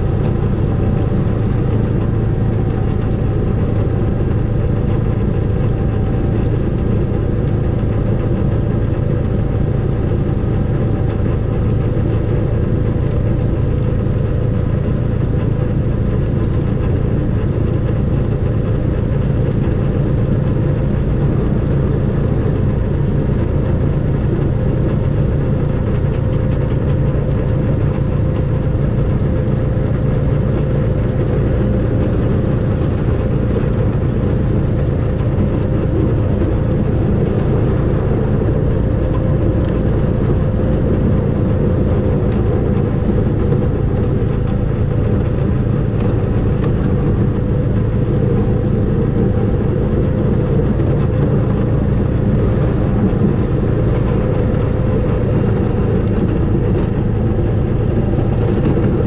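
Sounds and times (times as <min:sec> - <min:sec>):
engine rumbling steadily: 0:00.0 - 0:59.0
faint engine whine: 0:00.0 - 0:59.0.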